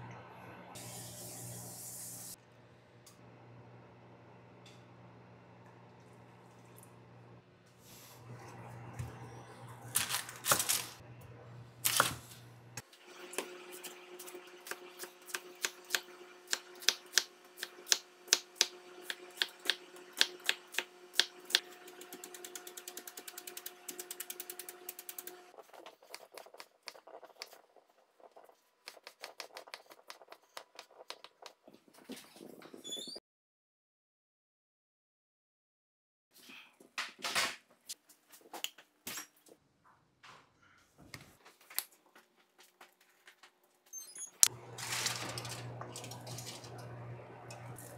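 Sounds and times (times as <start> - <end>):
knife chopping onion on wooden board: 14.6 - 25.4.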